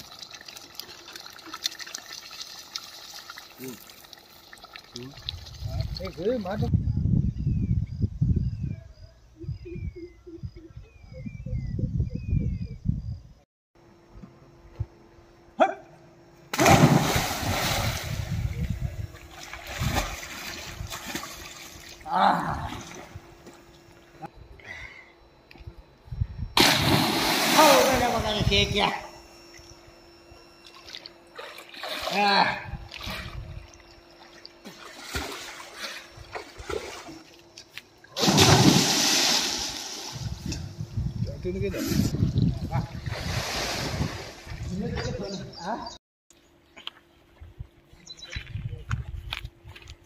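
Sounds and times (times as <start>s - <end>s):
loud splash into water: 16.6s - 18.2s, 26.6s - 28.2s, 38.2s - 40.2s
water churning and splashing: 16.6s - 18.2s, 30.8s - 33.6s, 34.2s - 37.3s, 38.1s - 40.4s
swimmer splashing: 26.6s - 28.3s, 34.1s - 37.4s, 38.2s - 40.2s.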